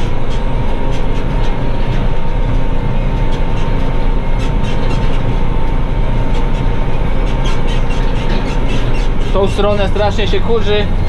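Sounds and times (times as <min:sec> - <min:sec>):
thin steady whine: 0:00.0 - 0:11.0
tractor engine droning: 0:00.0 - 0:11.0.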